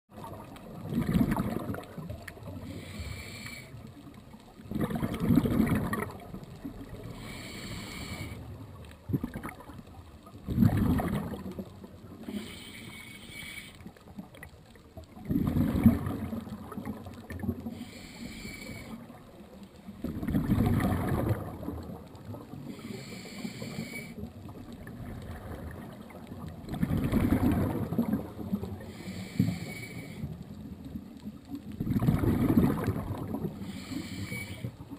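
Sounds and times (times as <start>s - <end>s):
exhaled bubbles bursting: 0.1s - 2.7s, 4.5s - 7.0s, 9.0s - 12.2s, 14.2s - 17.7s, 20.0s - 22.8s, 24.4s - 28.9s, 31.7s - 33.9s
regulator hissing on inhale: 2.6s - 3.9s, 7.0s - 8.5s, 12.2s - 14.0s, 17.7s - 19.1s, 22.7s - 24.2s, 28.8s - 30.4s, 33.6s - 34.8s.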